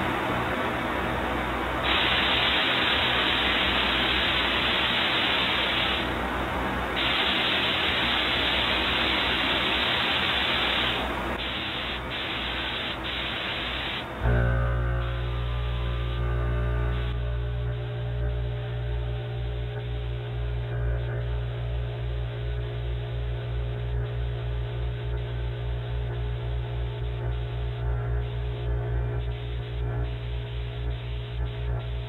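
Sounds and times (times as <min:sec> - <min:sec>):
steady low hum: 0:00.0 - 0:32.0
paint spray gun hissing: 0:01.8 - 0:06.1, 0:06.9 - 0:14.2.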